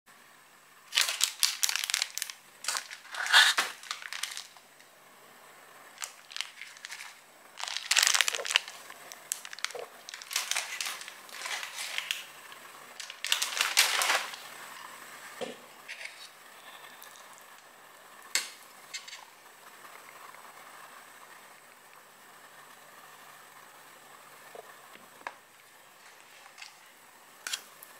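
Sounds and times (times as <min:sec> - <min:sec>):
background hiss: 0:00.1 - 0:27.9
crinkling and rustling handling: 0:00.9 - 0:04.8, 0:06.0 - 0:14.5, 0:15.4 - 0:16.4, 0:24.6 - 0:27.7.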